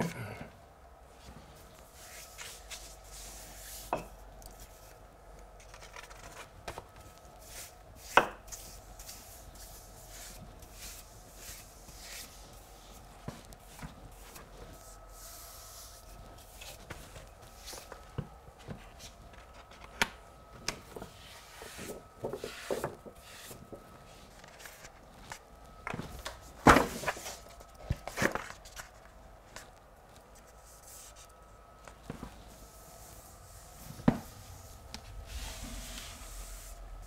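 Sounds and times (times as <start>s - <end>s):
paper rustling and crinkling: 5.6s - 7.7s, 20.7s - 35.4s.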